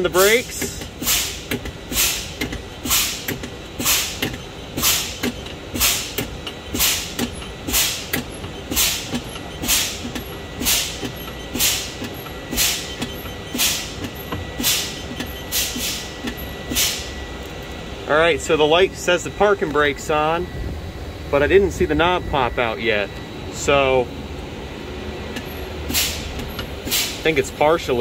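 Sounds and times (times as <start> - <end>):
air brakes hissing: 0.2 - 17.2, 25.4 - 27.4
brake pedal click: 0.5 - 16.4.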